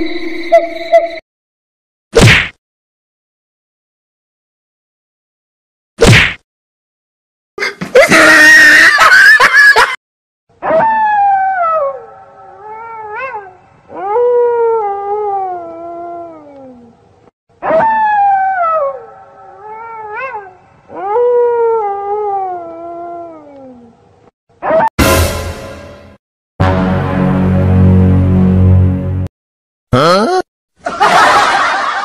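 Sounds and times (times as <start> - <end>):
eerie wailing howls: 10.7 - 17.0, 17.6 - 24.0.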